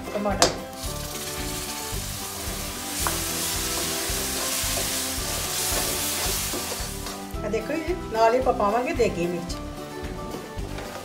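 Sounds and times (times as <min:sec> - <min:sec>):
food sizzling: 0:00.4 - 0:08.0
spoon stirring in pan: 0:00.8 - 0:07.2.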